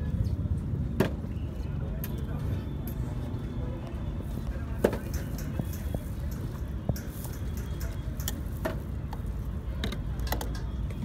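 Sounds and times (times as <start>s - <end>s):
tongs clicking on steel container: 5.1s - 8.6s.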